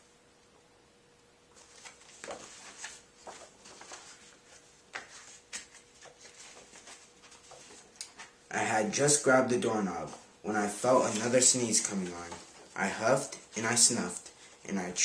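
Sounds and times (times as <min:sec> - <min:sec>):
faint steady hum: 0:00.0 - 0:15.0
book pages rustling and flipping: 0:01.5 - 0:08.4, 0:10.0 - 0:14.2.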